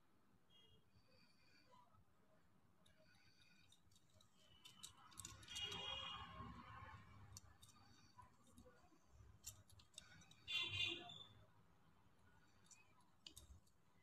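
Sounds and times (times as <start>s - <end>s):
plastic beads clicking together: 2.9s - 11.2s, 12.4s - 14.0s.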